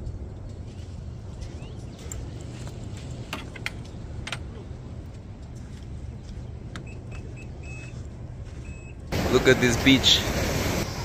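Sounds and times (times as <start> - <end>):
wind: 0.0 - 11.0
surf rumble: 9.1 - 11.0.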